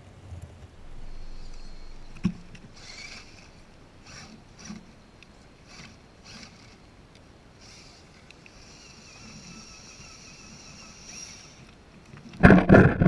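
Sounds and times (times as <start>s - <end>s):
electric motor and gearbox whining: 0.8s - 5.0s, 5.6s - 6.9s, 7.6s - 11.8s.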